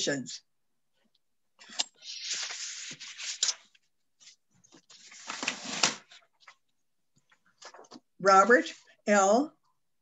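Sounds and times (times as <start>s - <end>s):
rustling and scraping on microphone: 1.9s - 6.6s.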